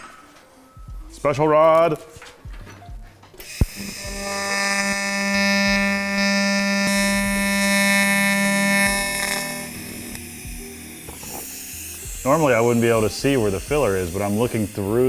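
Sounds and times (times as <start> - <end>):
welding arc buzzing: 3.4 - 15.0.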